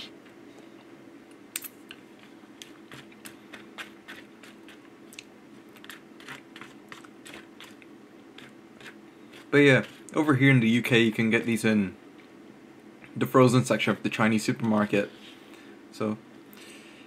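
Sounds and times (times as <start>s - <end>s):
steady low hum: 0.0s - 17.0s
chewing: 1.6s - 10.2s.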